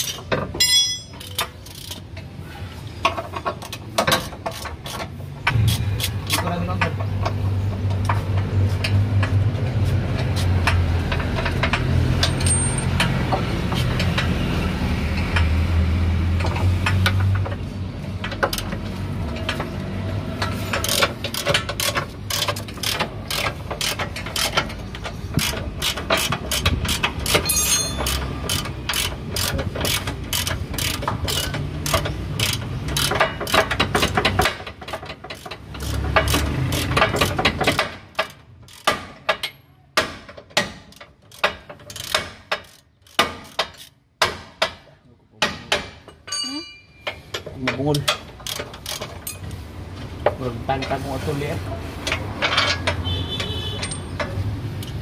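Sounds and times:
ratchet wrench clicking: 0:00.0 - 0:02.2, 0:03.0 - 0:06.5, 0:20.4 - 0:39.6, 0:40.9 - 0:44.0, 0:47.0 - 0:49.6.

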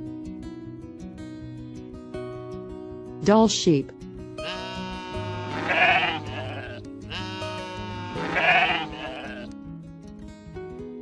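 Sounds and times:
background music: 0:00.0 - 0:11.0
sheep bleating: 0:04.4 - 0:09.6.

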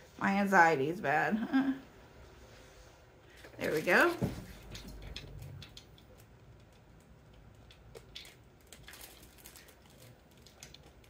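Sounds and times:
rustling of small items: 0:03.3 - 0:11.0.

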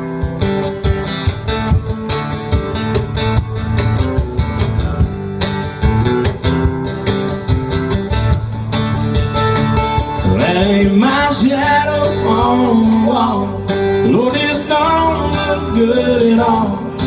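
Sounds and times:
acoustic guitar strumming: 0:00.0 - 0:17.0
percussion beat: 0:00.2 - 0:11.4.

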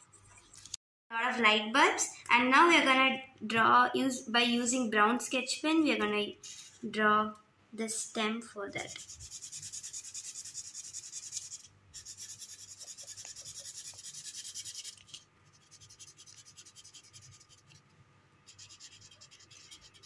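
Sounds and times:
felt-tip pen scribbling on paper: 0:08.9 - 0:17.8, 0:18.5 - 0:20.0.

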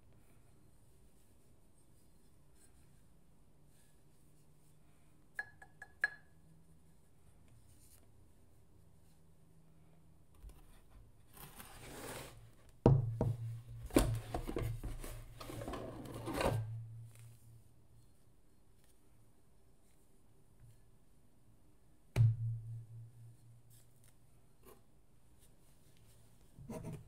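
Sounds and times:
cardboard rustling and scraping: 0:11.3 - 0:12.5, 0:13.9 - 0:17.3.

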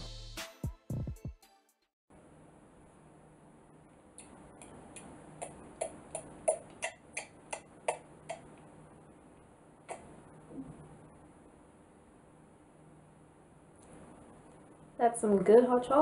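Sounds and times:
faint steady hum: 0:02.1 - 0:16.0
person gulping swallowing clicks: 0:05.0 - 0:08.5.

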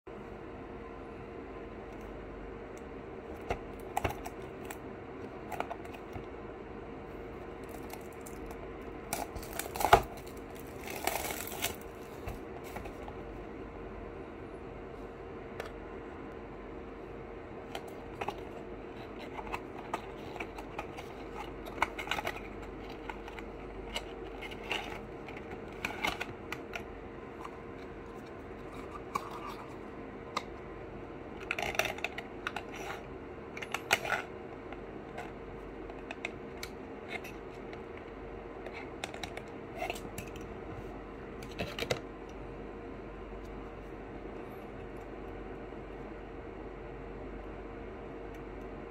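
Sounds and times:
background hum: 0:00.1 - 0:48.9
packaging clicks and crinkles: 0:07.6 - 0:13.0.

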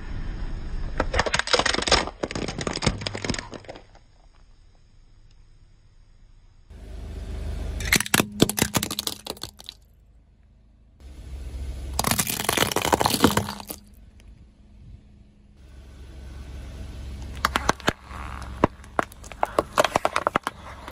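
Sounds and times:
plastic cracking and snapping: 0:01.1 - 0:03.9
car rumbling: 0:04.5 - 0:20.9.

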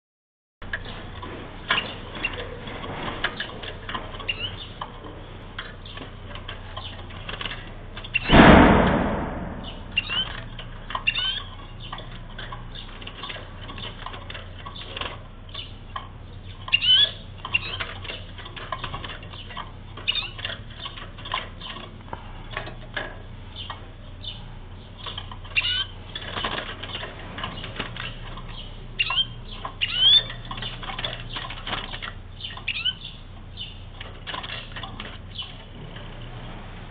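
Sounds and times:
canary call notes: 0:28.1 - 0:30.8.

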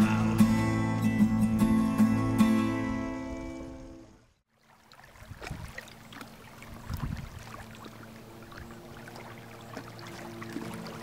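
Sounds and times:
small waves lapping on pebbles: 0:04.5 - 0:11.0.

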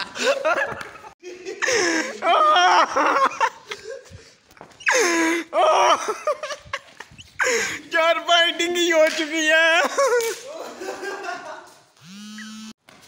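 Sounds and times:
people laughing: 0:00.0 - 0:08.3, 0:09.6 - 0:12.0.

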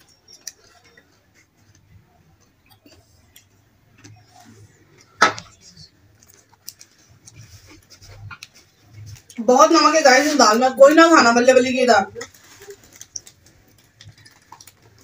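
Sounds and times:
chewing: 0:00.0 - 0:09.4, 0:12.2 - 0:15.0
plastic snack packets crackling: 0:05.5 - 0:15.0
snack being poured: 0:12.2 - 0:15.0.

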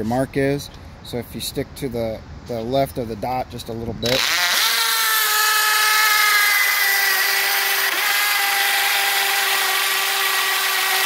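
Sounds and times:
cordless drill drilling metal: 0:04.0 - 0:11.0.

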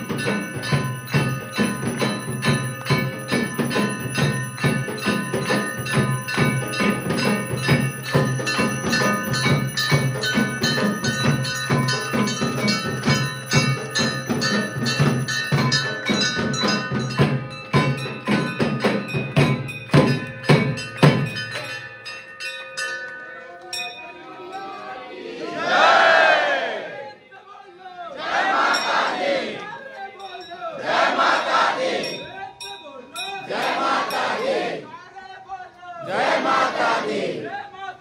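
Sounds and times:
drum beaten rapidly: 0:00.0 - 0:22.3
temple bells clanging: 0:00.0 - 0:25.7, 0:28.4 - 0:34.7.

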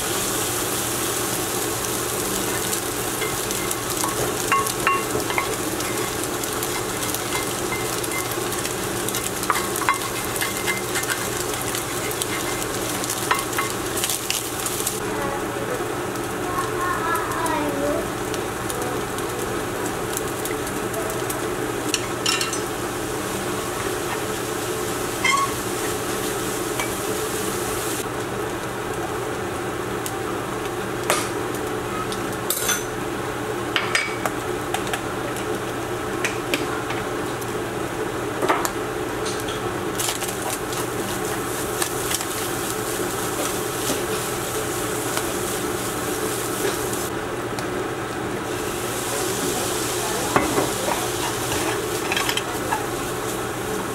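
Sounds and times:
food sizzling in a wok: 0:00.0 - 0:53.9
spatula scraping pan: 0:02.4 - 0:14.2, 0:50.3 - 0:53.0.

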